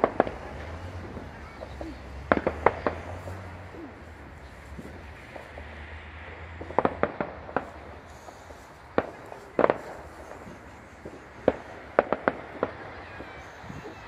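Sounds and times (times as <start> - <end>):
firework shells bursting: 6.6 - 13.9.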